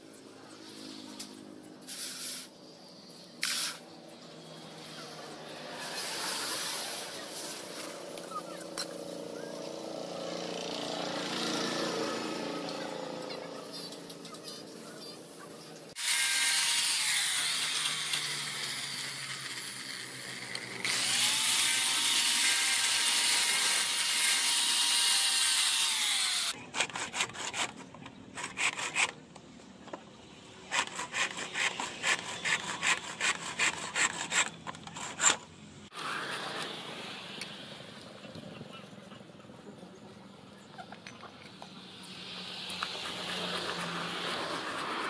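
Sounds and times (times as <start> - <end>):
angle grinder grinding steel: 16.0 - 29.2, 30.6 - 35.5
file rasping wood: 20.9 - 29.2, 30.7 - 35.4.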